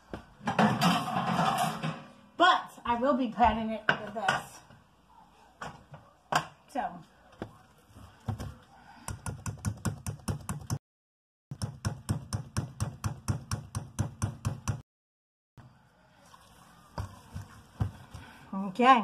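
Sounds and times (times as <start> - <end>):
dough beaten in mixing bowl: 9.0 - 10.8, 16.9 - 18.4.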